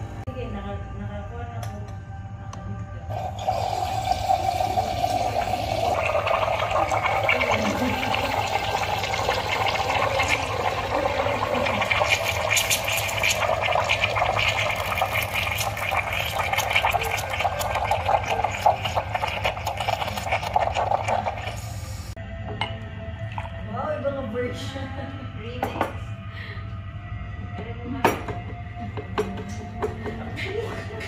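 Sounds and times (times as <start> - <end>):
milk bubbles crackling: 3.1 - 21.9.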